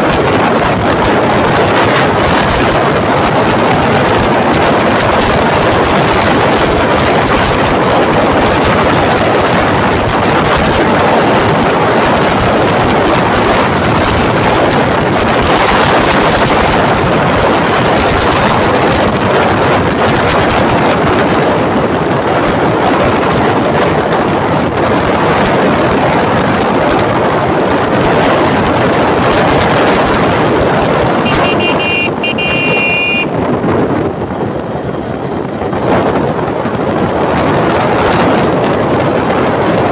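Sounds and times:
road noise: 0.0s - 39.9s
wind rushing over microphone: 0.0s - 39.9s
motorcycle engine: 31.2s - 33.3s
brief high-pitched tone: 31.3s - 33.3s.

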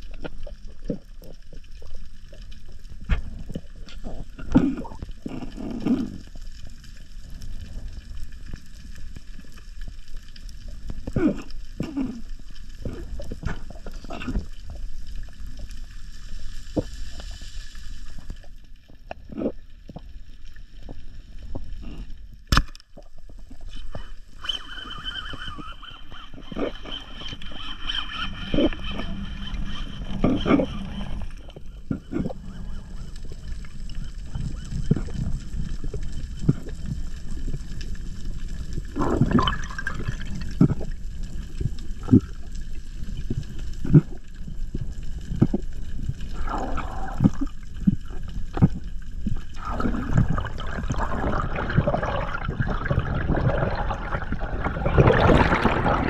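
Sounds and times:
bubbles: 0.0s - 17.4s, 22.9s - 56.0s
muffled underwater swishing: 44.8s - 56.0s.

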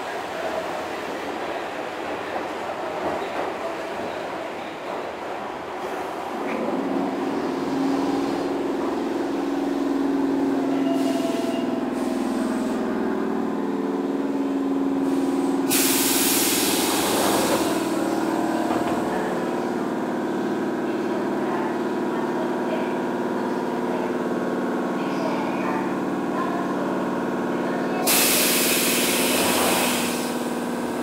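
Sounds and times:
electric train rumble and hum: 0.0s - 31.0s
compressed air hiss: 15.7s - 17.8s.

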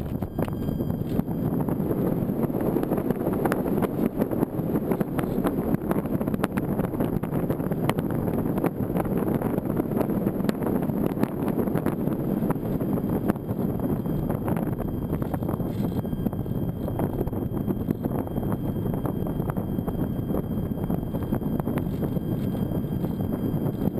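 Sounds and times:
wind rumble on microphone: 0.0s - 23.9s.

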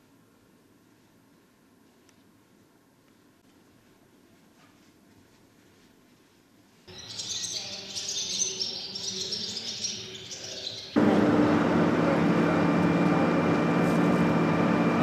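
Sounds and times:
swallows twittering: 6.9s - 11.0s
vehicle road and engine noise: 11.0s - 15.0s.

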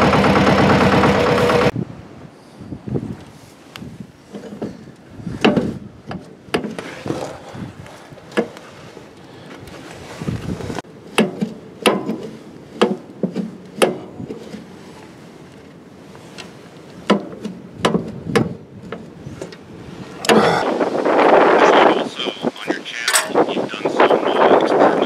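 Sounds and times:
knocks and clunks: 4.3s - 7.6s, 11.1s - 14.7s, 16.4s - 19.6s, 23.0s - 23.5s.

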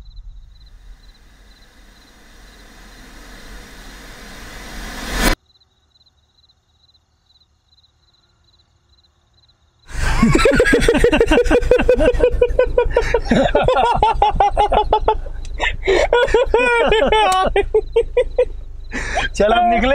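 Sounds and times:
men laughing loudly: 9.9s - 19.9s
faint high ticking: 11.5s - 19.5s.

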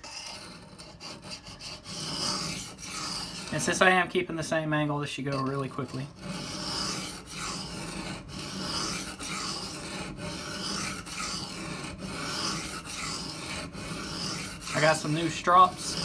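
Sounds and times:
knife grinding on whetstone: 0.0s - 16.0s.

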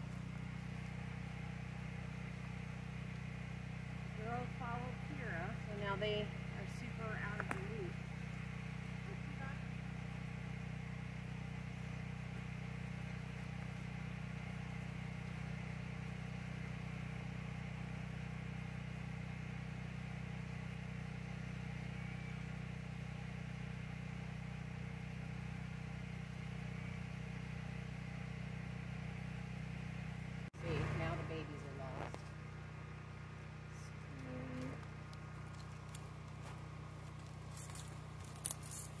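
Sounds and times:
engine running steadily: 0.0s - 39.0s.

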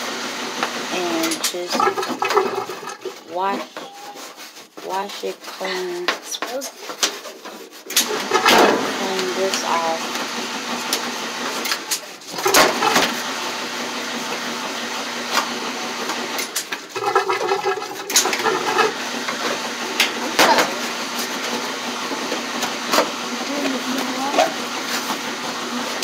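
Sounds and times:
hand rubbing lint screen: 3.1s - 7.9s.

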